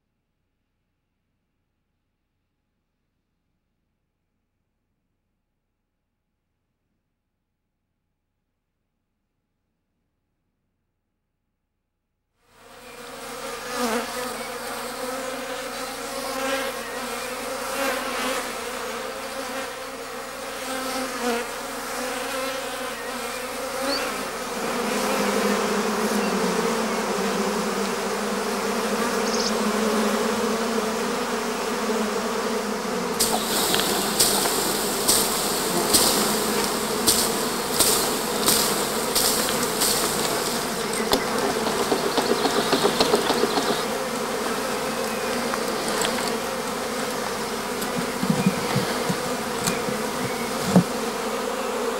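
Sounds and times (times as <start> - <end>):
bee swarm buzzing: 12.6 - 51.9
pruning shears snipping: 33.2 - 43.7.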